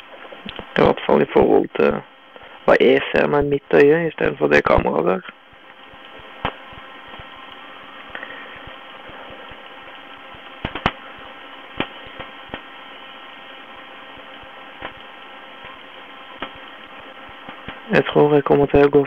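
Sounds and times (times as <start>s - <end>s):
electrical hum and hiss: 0.0s - 19.0s
sharp clicks: 10.6s - 12.7s.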